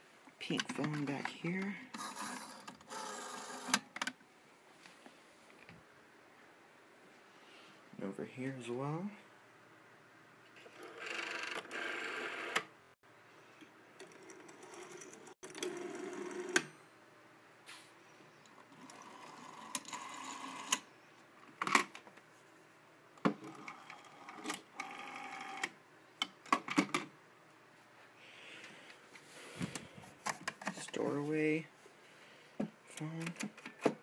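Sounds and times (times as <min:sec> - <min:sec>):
rotary phone dial whirring: 0:01.9 - 0:04.0, 0:10.6 - 0:12.7, 0:14.0 - 0:16.7, 0:18.7 - 0:20.9, 0:23.4 - 0:25.8.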